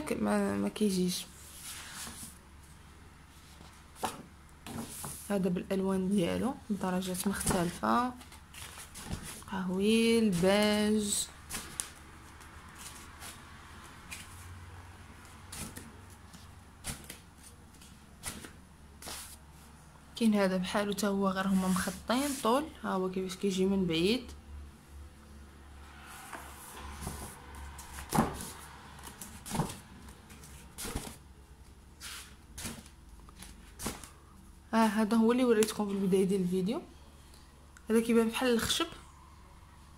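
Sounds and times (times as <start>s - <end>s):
pages rustling and tapping: 3.6s - 5.3s, 7.3s - 9.5s, 11.4s - 13.4s, 15.2s - 19.4s, 27.0s - 31.2s, 32.6s - 34.2s.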